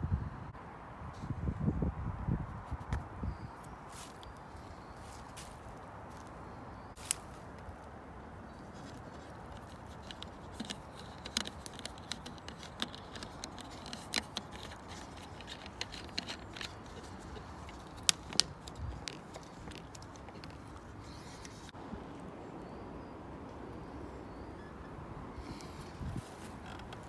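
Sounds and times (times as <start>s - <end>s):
wire twisting clicks and scrapes: 8.6s - 21.8s, 25.5s - 27.0s.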